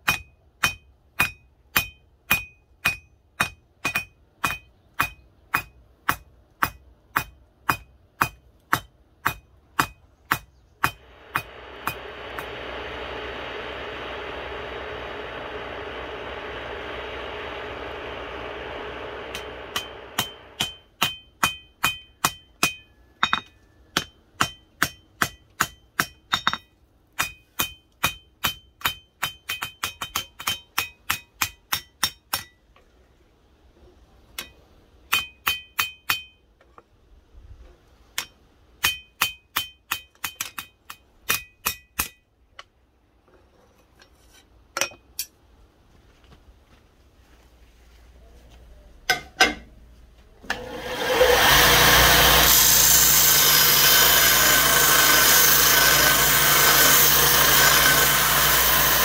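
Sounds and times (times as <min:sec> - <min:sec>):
steady rushing noise: 0:11.0 - 0:20.6
hammer ringing on anvil: 0:19.2 - 0:26.6.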